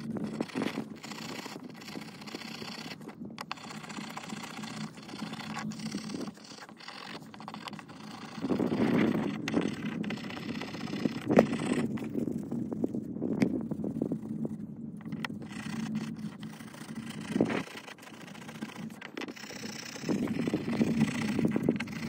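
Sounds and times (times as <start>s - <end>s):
wire brush scrubbing metal: 15.1s - 22.0s.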